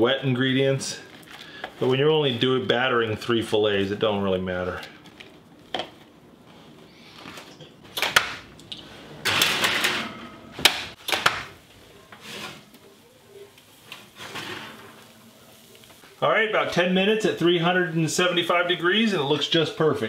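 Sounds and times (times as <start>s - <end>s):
baking sheet clattering on oven rack: 9.2s - 11.5s.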